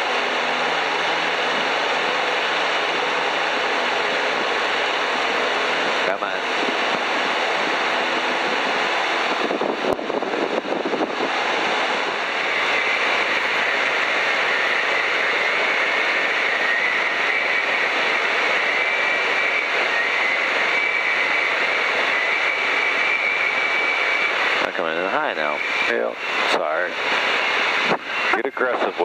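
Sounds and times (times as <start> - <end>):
airplane engine and propeller: 0.0 - 29.0
steady high whine: 0.0 - 29.0
wind rushing: 4.2 - 17.8, 24.2 - 28.6.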